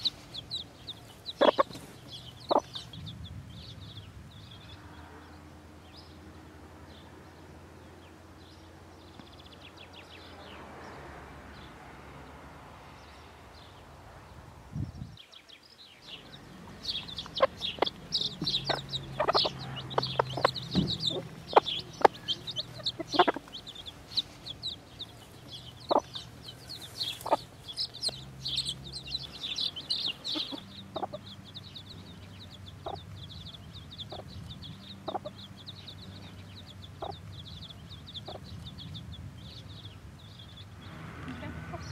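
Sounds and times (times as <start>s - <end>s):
chicks peeping: 0.0s - 4.8s, 16.0s - 41.9s
hen clucking low: 1.3s - 1.8s, 2.4s - 2.8s, 17.1s - 24.8s, 25.4s - 31.4s.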